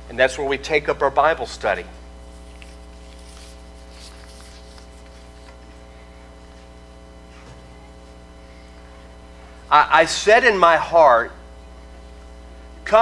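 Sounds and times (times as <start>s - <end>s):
electrical mains hum: 0.0s - 13.0s
paper pages rustling: 2.2s - 5.8s.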